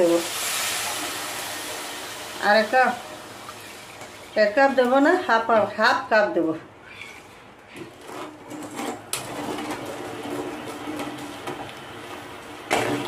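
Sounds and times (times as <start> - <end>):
metal ladle scraping pan: 6.8 - 11.3.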